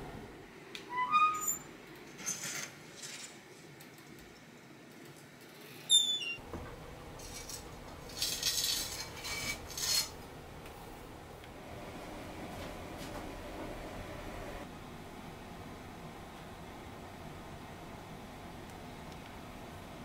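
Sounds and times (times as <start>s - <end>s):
metal fork scraping: 7.2s - 10.2s.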